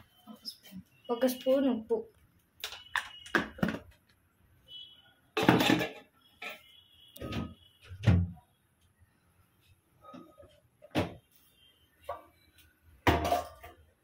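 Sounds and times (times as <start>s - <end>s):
dishes and utensils clattering: 5.4s - 6.7s, 13.1s - 13.9s.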